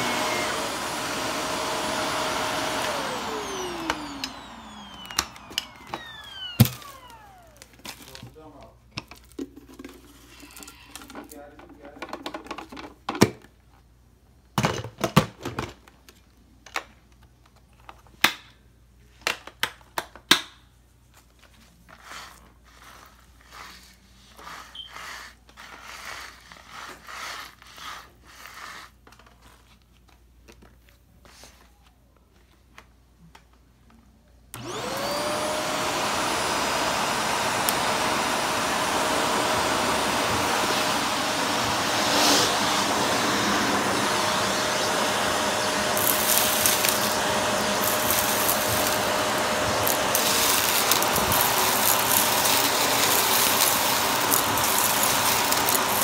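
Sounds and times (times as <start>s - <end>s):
vacuum cleaner motor whine: 0.0s - 8.5s, 34.5s - 56.0s.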